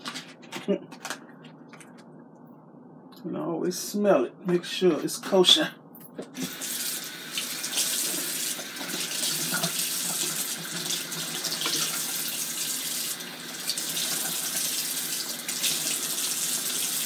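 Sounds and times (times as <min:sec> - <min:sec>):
kitchen faucet running: 0:06.4 - 0:17.0.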